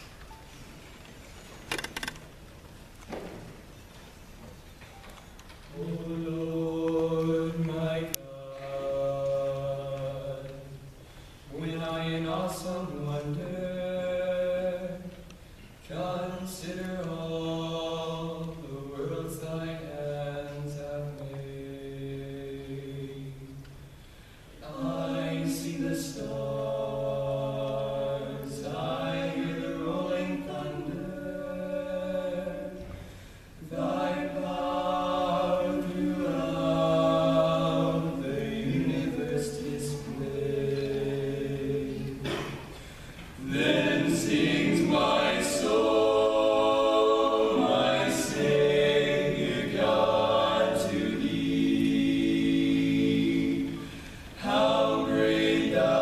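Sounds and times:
male quartet singing a cappella: 5.7s - 10.9s, 11.5s - 23.8s, 24.6s - 42.5s, 43.3s - 56.0s
singers breathing: 11.0s - 11.5s, 23.8s - 24.6s, 32.9s - 33.6s, 42.6s - 43.4s, 53.8s - 54.4s.

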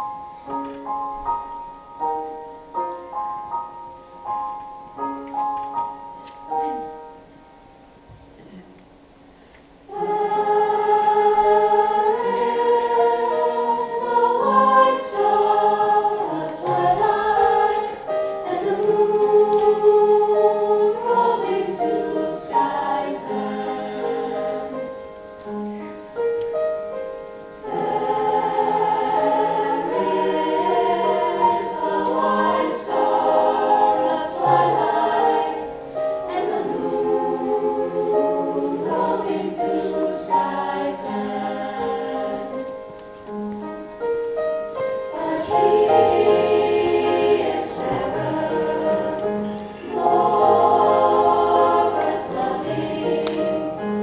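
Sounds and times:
choir singing held chords: 9.9s - 26.1s, 27.3s - 43.0s, 44.7s - 54.0s.

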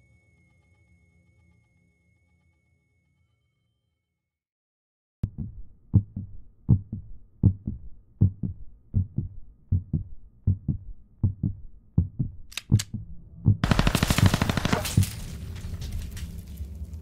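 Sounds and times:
heartbeat thumps: 5.2s - 14.4s
loud rapid rattling: 13.6s - 15.4s.

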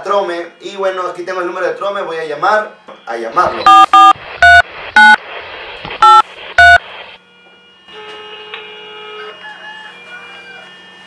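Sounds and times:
two-note keypad beeps: 3.6s - 5.2s.

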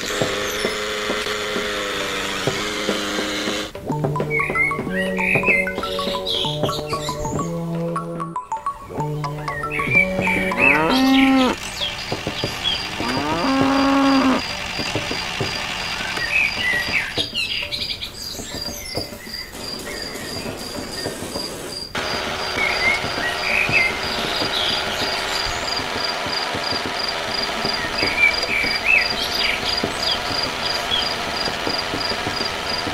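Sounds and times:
birds chirping: 0.0s - 32.9s
cow mooing: 10.2s - 11.6s, 12.9s - 14.5s.

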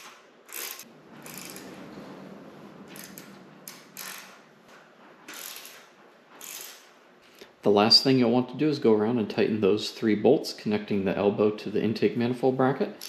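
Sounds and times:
hand ratchet clicking: 0.0s - 1.8s, 2.9s - 4.4s, 5.3s - 6.9s
metal parts handled: 2.8s - 4.5s, 5.2s - 6.9s.

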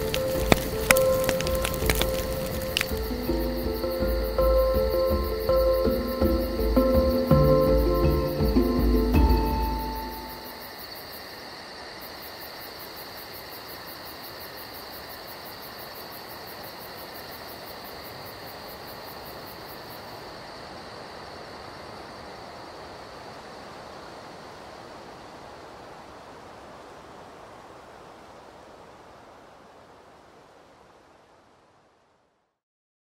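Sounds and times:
hissing ambience: 0.0s - 31.6s.

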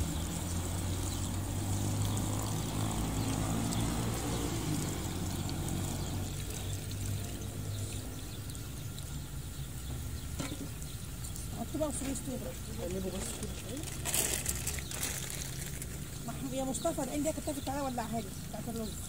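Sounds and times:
water pouring into a pot: 0.0s - 9.4s, 11.8s - 17.5s.

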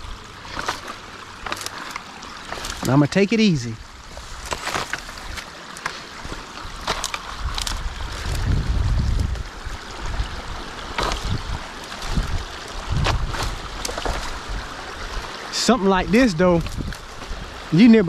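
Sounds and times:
water washing: 0.0s - 18.0s
sticks cracking and snapping: 0.4s - 2.9s, 4.4s - 8.5s, 10.9s - 12.2s, 13.0s - 14.4s
wind rumble on microphone: 6.2s - 15.4s, 16.0s - 17.8s.

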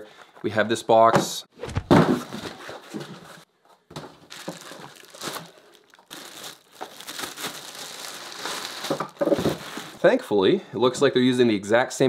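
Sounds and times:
plastic bag crinkling: 4.0s - 10.1s.

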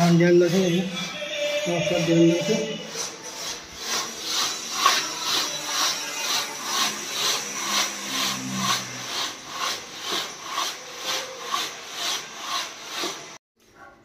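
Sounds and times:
sand swishing through mesh sieve: 3.5s - 13.4s.

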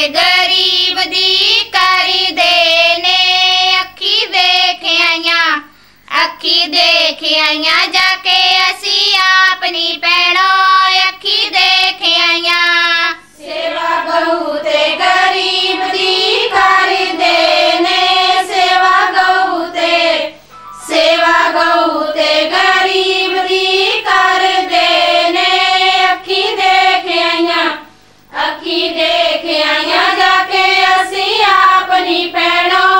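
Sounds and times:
high voice singing devotional song: 0.0s - 32.9s.

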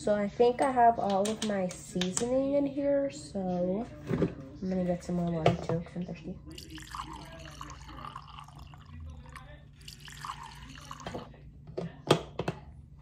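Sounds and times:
water gurgling in plastic jug: 6.5s - 11.3s.

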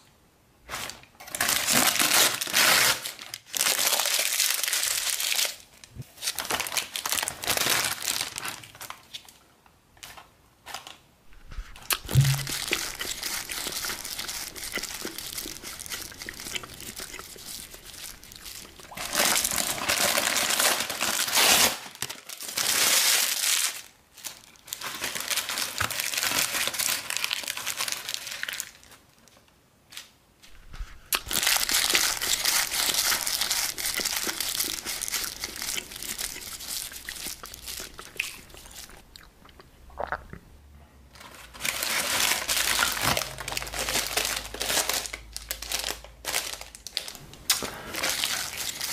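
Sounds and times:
paper crumpling and tearing: 0.7s - 5.6s, 6.2s - 9.3s, 10.1s - 28.8s, 30.5s - 38.8s, 41.2s - 48.9s
soft thump: 12.0s - 12.5s.

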